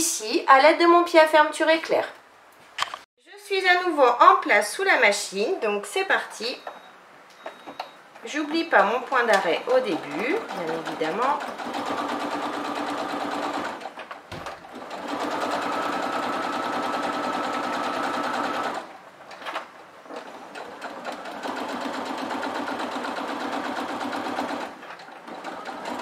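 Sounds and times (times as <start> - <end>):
sewing machine stitching: 9.6 - 26.0.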